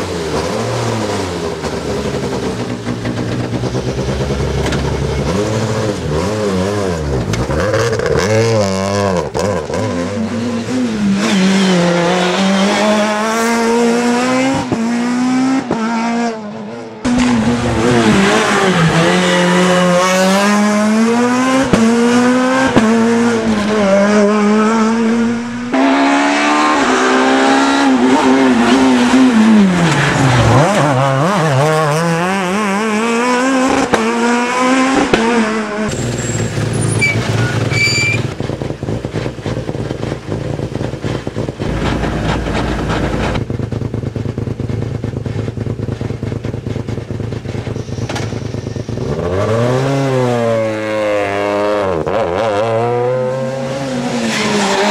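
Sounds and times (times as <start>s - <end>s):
rally car engines revving: 0.0s - 54.9s
low engine rumble: 41.4s - 45.0s.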